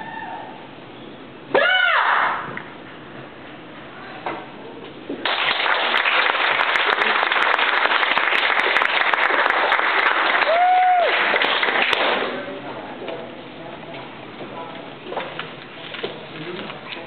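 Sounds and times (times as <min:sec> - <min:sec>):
audience applauding: 0:05.2 - 0:12.3
high-pitched cheer: 0:10.2 - 0:11.4.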